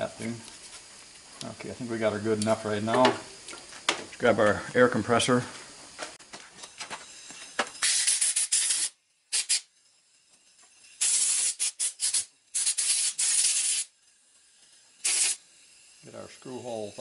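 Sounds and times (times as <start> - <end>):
compressed air blow gun blasting: 7.8 - 9.7, 11.0 - 14.0, 15.0 - 15.4.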